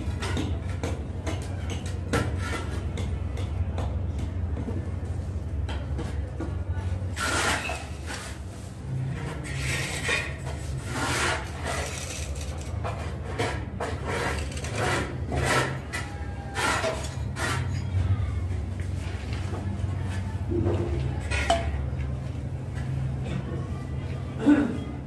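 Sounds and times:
trowel scraping wet tile adhesive: 7.2s - 8.4s, 9.4s - 17.9s.

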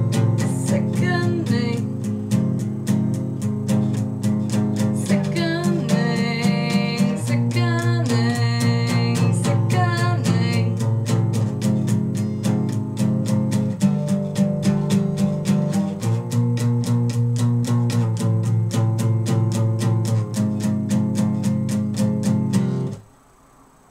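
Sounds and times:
acoustic guitar strumming: 0.0s - 23.1s
woman singing: 0.1s - 2.1s, 4.8s - 10.9s.

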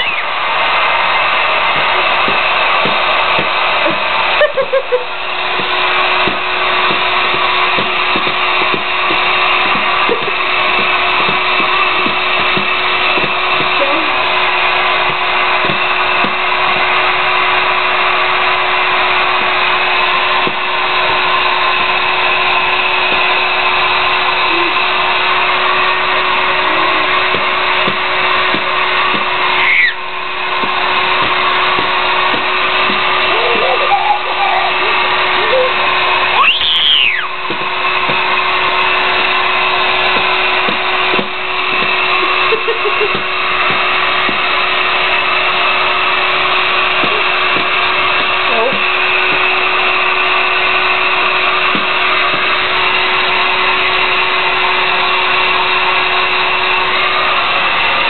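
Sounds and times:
hair dryer running: 0.0s - 58.0s.

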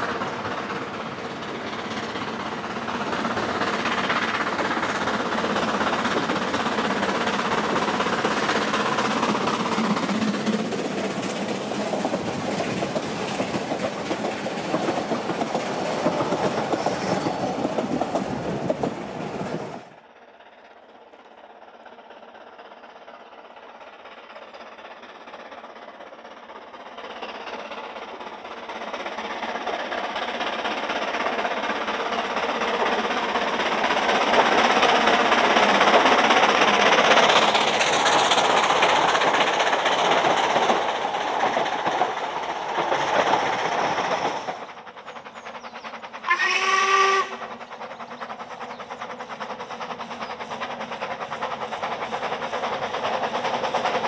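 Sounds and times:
steam train running: 0.0s - 54.0s
steam whistle blast: 46.2s - 47.4s.

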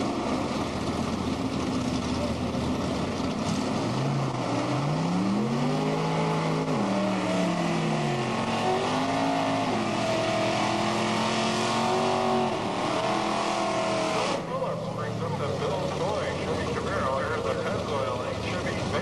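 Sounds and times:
race car engine revving: 0.0s - 19.0s.

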